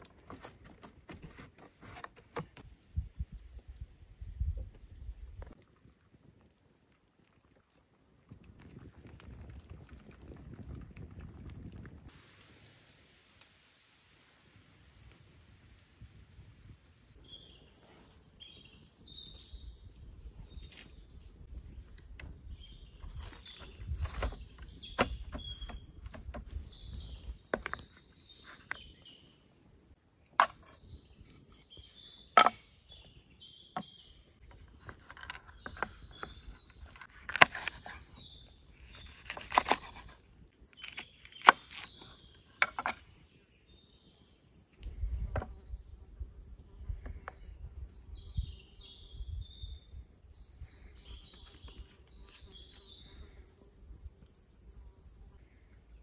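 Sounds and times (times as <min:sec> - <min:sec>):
high insect buzz: 0:30.2 - 0:56.0.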